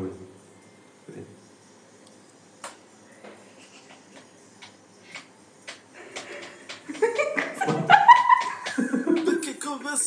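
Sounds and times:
people laughing: 3.5s - 4.4s, 6.0s - 9.6s
faint clicks: 3.6s - 7.7s.

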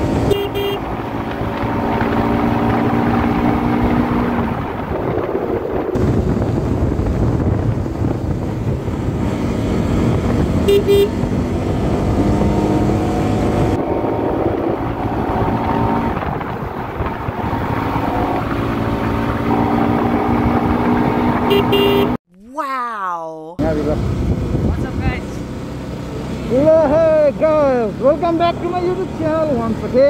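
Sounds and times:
wind rush on microphone: 0.0s - 21.6s, 23.6s - 25.4s
motorcycle engine droning: 0.0s - 22.2s
horn toots: 0.2s - 0.9s, 10.6s - 11.2s, 21.4s - 22.2s.

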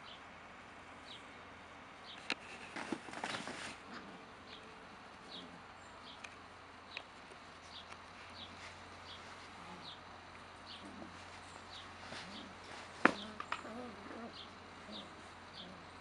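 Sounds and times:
rustling and knocks: 2.4s - 3.8s, 12.0s - 13.7s
puppies scuffling on fabric tunnel: 2.4s - 4.1s, 10.8s - 14.3s.

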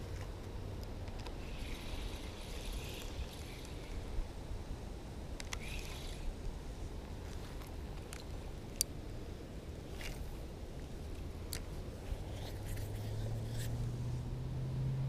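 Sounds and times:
low wind rumble: 0.0s - 15.0s
fishing reel clicks: 1.1s - 4.0s, 5.4s - 6.4s.

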